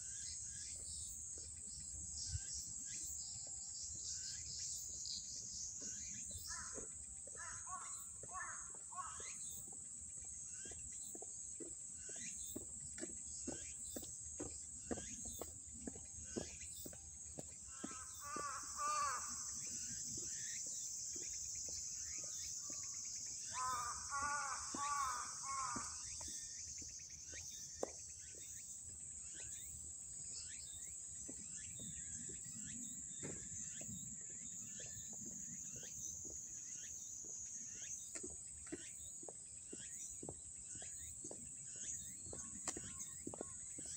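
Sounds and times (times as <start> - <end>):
insects chorus: 0.0 - 11.3, 12.0 - 43.9
bird calls: 4.1 - 11.2, 12.0 - 28.7, 29.3 - 43.9
heeled footsteps on wet asphalt: 10.6 - 18.8, 23.6 - 28.9, 37.8 - 43.9.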